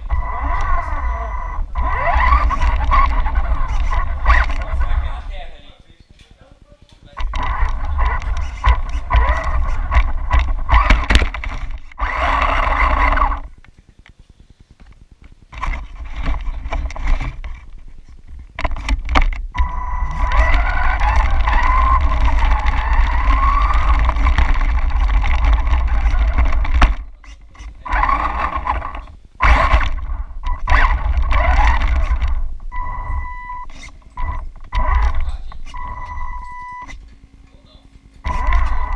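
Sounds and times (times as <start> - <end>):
toy car motor whining: 0.0 - 5.6, 7.2 - 13.5, 18.7 - 37.0, 38.2 - 38.9
tyres rumbling on paving: 0.0 - 5.7, 7.2 - 13.5, 15.8 - 36.4.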